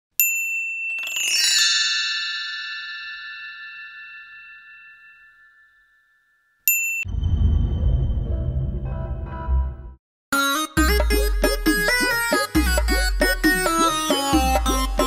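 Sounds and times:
high chime ding: 0.2s - 7.1s
bell-like tones ringing: 0.2s - 7.2s.

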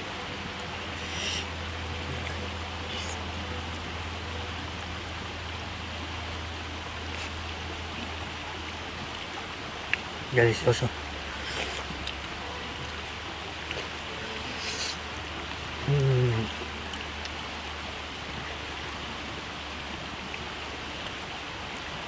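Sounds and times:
river flowing over rocks: 0.0s - 22.0s
man humming with enjoyment: 15.8s - 16.6s.

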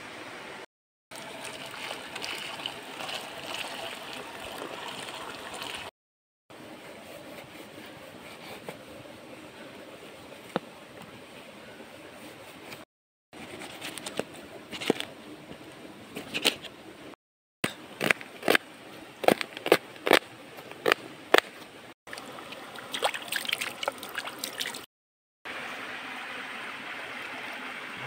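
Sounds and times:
shallow stream flowing: 0.0s - 5.9s, 22.1s - 24.9s, 25.5s - 28.0s.

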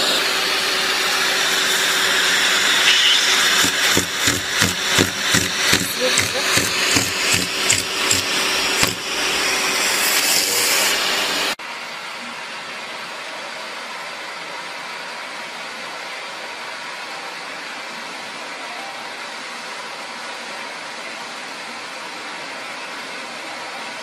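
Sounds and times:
vacuum cleaner running: 0.0s - 24.0s
loud rhythmic pulsing: 3.3s - 9.6s.

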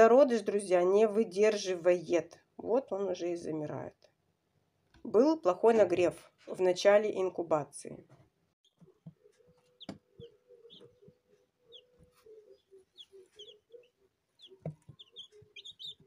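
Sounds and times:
chicks peeping: 8.6s - 16.0s.

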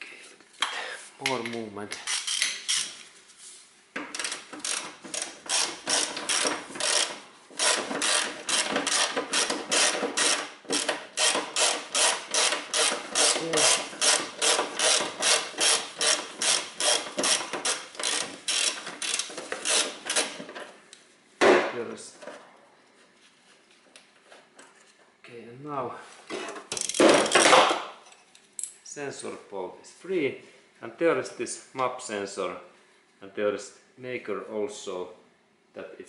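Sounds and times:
ratchet wrench clicking: 2.0s - 3.0s, 4.2s - 20.3s, 26.8s - 27.0s.

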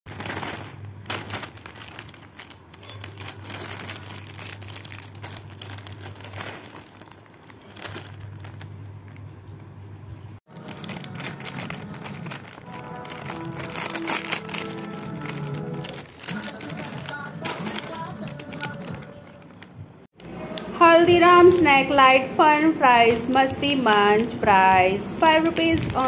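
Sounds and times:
snack packet crinkling: 0.1s - 9.3s, 10.5s - 20.4s, 25.2s - 26.0s.

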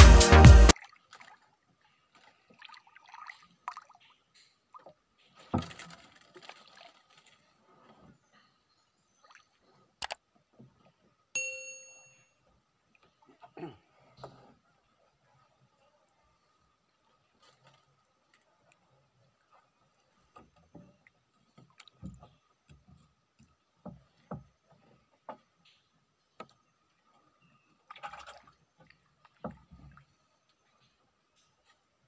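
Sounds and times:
water splashing: 0.6s - 8.2s, 26.4s - 31.0s
water lapping against boat hull: 0.7s - 11.3s, 12.6s - 32.0s
faint steady high tone: 11.4s - 12.6s.

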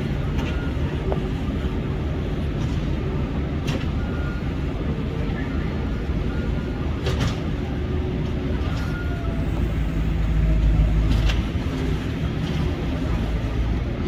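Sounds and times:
heavy diesel machinery drone: 0.0s - 14.0s.

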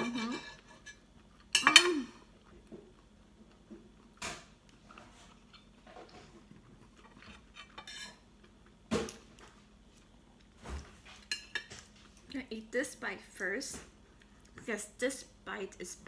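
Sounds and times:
knife and fork scraping a plate: 7.4s - 8.2s.

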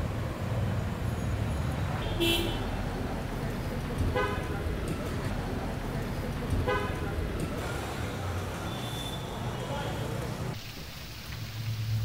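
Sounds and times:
traffic rumble: 0.0s - 12.0s
car horn toots: 2.0s - 2.6s.

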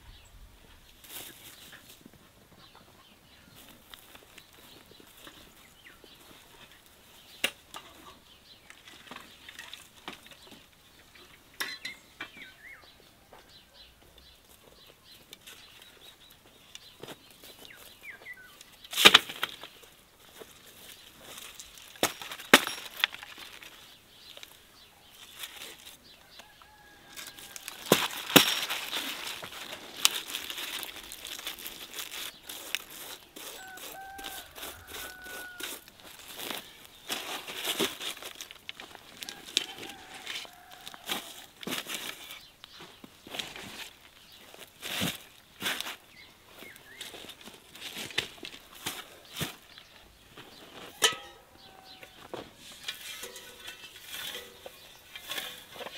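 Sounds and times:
leaves and stalks rustling: 0.7s - 11.3s, 14.3s - 55.9s
birds calling: 1.0s - 55.9s
stalks snapping: 27.5s - 33.2s.

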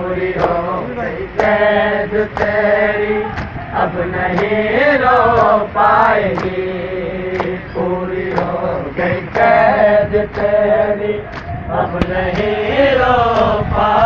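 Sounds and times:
men chanting in unison: 0.0s - 14.0s
sharp slaps: 0.4s - 0.6s, 2.3s - 2.6s, 3.3s - 3.6s, 4.3s - 4.5s, 5.3s - 5.6s, 6.3s - 6.6s, 7.3s - 7.6s, 8.3s - 9.6s, 10.3s - 10.6s, 11.3s - 12.6s.

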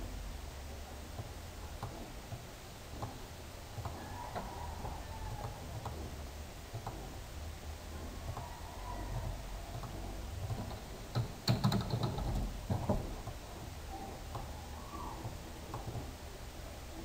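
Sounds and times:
low steady hum: 0.0s - 17.0s
computer mouse clicks: 1.1s - 6.1s, 8.2s - 13.4s.

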